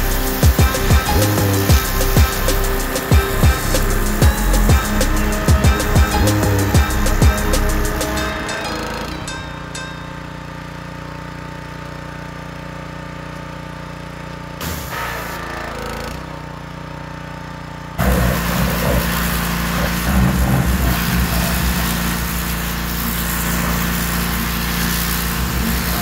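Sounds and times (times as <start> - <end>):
high-pressure water jet hissing: 0.0 - 8.4, 14.6 - 15.5, 18.0 - 26.0
pressure washer engine running: 0.0 - 26.0.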